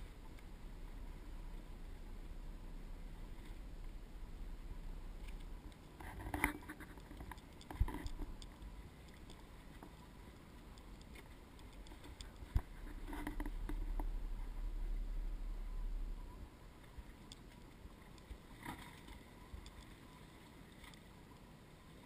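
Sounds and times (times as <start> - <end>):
knocks and clatters on boat: 0.0 - 10.1, 10.8 - 14.9
low steady rumble: 0.0 - 22.0.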